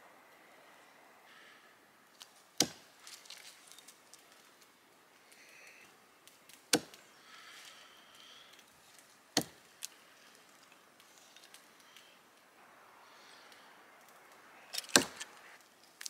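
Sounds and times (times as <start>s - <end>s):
blade chopping into wood: 2.6s - 2.9s, 6.7s - 7.0s, 9.4s - 9.6s, 14.8s - 15.3s.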